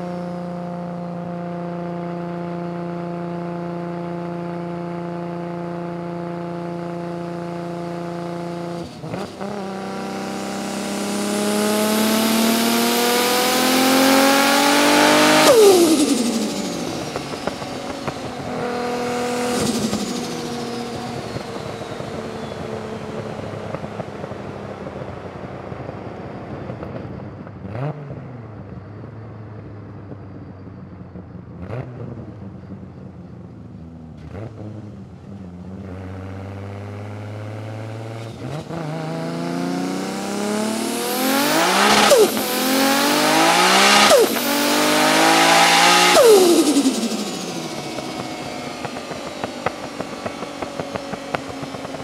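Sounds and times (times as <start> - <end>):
engine revving at full throttle: 0.0 - 26.6, 27.6 - 28.5, 35.8 - 52.0
car engine running: 6.4 - 27.9, 38.6 - 52.0.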